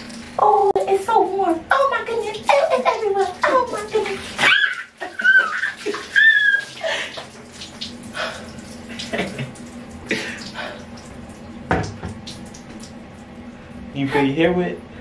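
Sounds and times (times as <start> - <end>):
water pouring and splashing: 1.8 - 13.8
woman squealing: 4.4 - 6.9.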